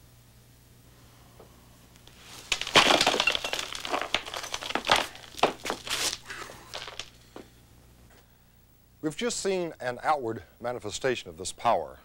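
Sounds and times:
broken concrete crunching and scraping: 2.1s - 7.2s
sledgehammer smashing concrete block: 2.4s - 7.1s.

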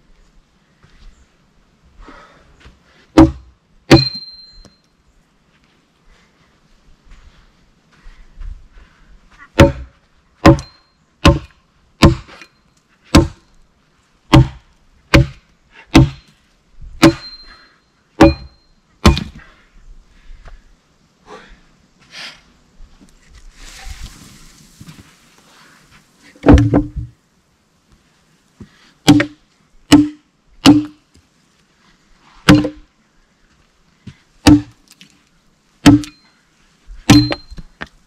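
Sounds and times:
hatchet chopping wood: 3.1s - 4.2s, 9.6s - 12.4s, 13.1s - 13.4s, 14.3s - 16.3s, 17.0s - 17.4s, 18.2s - 19.4s, 26.4s - 27.1s, 29.0s - 31.0s, 32.5s - 32.9s, 34.4s - 34.8s, 35.8s - 36.2s, 37.1s - 37.6s
rustling: 22.9s - 27.2s.

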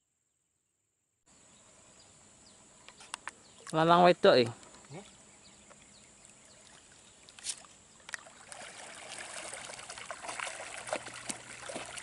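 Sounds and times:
water sloshing and splashing: 4.9s - 12.0s.

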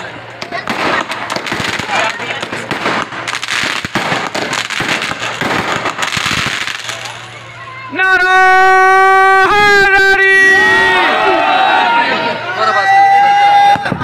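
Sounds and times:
fireworks crackling and popping: 0.0s - 8.7s, 13.6s - 14.0s
voices: 0.0s - 14.0s.

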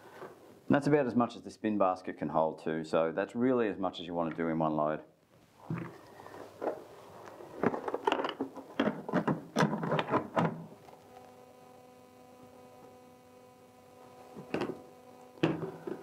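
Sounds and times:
electrical hum: 5.6s - 16.0s.

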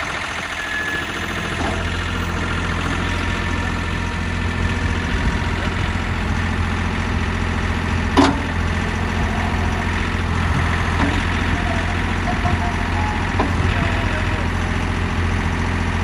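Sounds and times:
backhoe hydraulics: 0.0s - 16.0s
tractor diesel engine running: 0.0s - 16.0s
metal clank of backhoe boom: 8.1s - 8.6s.

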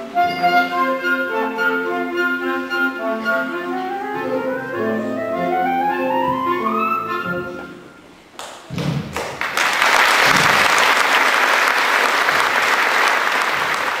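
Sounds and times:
orchestra playing: 0.0s - 8.3s
audience applause: 9.1s - 14.0s.

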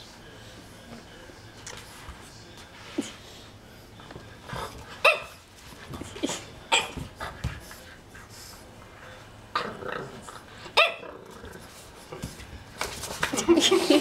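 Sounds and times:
puppy barking: 5.0s - 5.4s, 10.8s - 11.0s.

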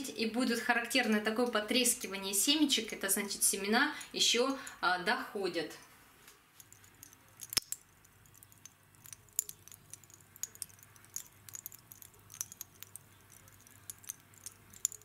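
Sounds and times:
roasted seeds crackling: 6.5s - 15.0s.

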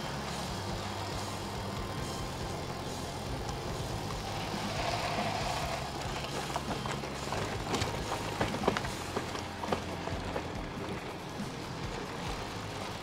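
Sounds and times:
bicycle rattling and knocking: 3.5s - 13.0s.

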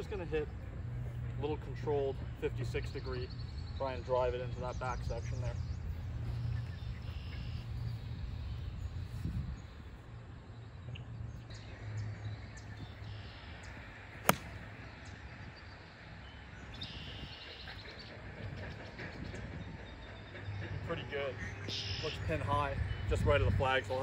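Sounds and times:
faint outdoor background: 0.0s - 24.0s
golf club striking ball: 14.2s - 14.6s.

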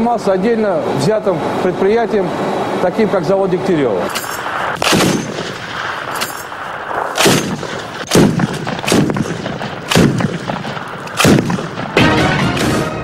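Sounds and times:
heavy machine gun shots: 4.1s - 13.0s.

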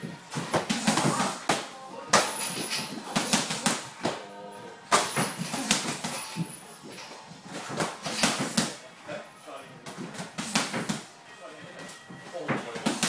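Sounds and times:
footwork on ring canvas: 0.0s - 8.8s, 11.7s - 13.0s
punches and kicks slapping: 0.3s - 4.2s, 4.9s - 6.5s, 7.5s - 8.8s, 9.9s - 11.1s, 12.5s - 13.0s.

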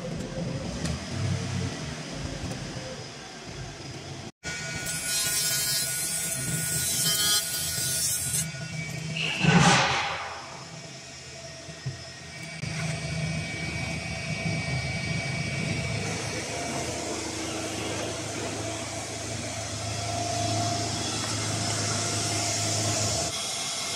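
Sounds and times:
machine cabinet whirring and humming: 0.0s - 23.9s.

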